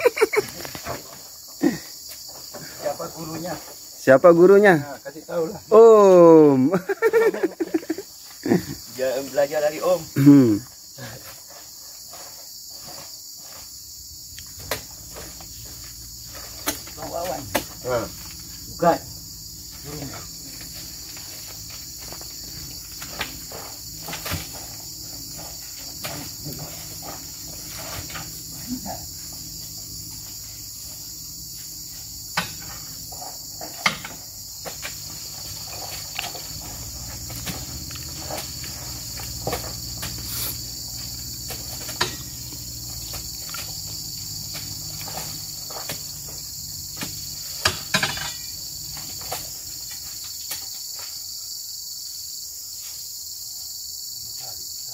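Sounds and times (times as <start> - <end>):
high insect chorus: 0.0 - 54.9
fruit bunches thudding onto truck bed: 14.4 - 29.6, 32.2 - 50.8.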